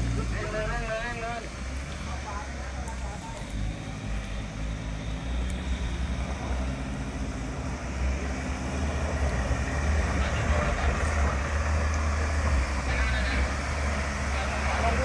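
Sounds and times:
off-road vehicle engine rumble: 0:00.0 - 0:15.0.

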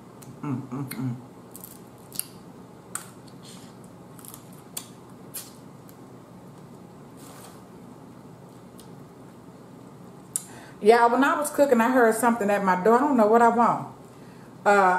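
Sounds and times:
person humming with enjoyment: 0:00.2 - 0:01.2
wet sucking and smacking: 0:01.5 - 0:05.6
crab shell cracking: 0:04.1 - 0:06.0.

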